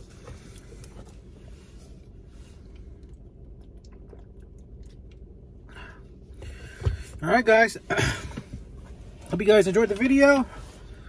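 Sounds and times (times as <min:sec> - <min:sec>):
chewing: 0:02.0 - 0:06.0.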